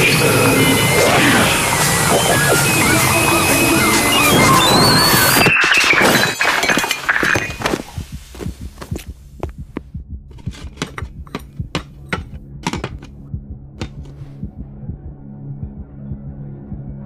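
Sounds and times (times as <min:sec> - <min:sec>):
loud dense din: 0:00.0 - 0:05.4
sharp thuds: 0:05.3 - 0:14.6.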